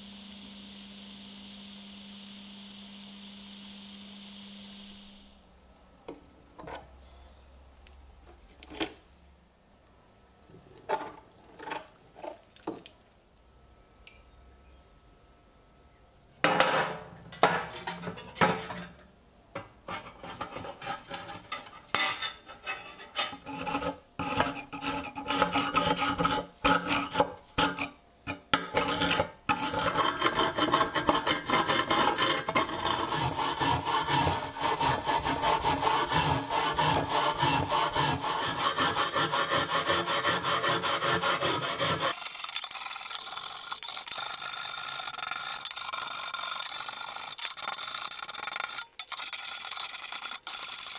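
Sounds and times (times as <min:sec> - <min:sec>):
wire brush scrubbing steel: 0:19.9 - 0:27.9, 0:28.7 - 0:50.9
file rasping on steel blade: 0:19.9 - 0:50.9.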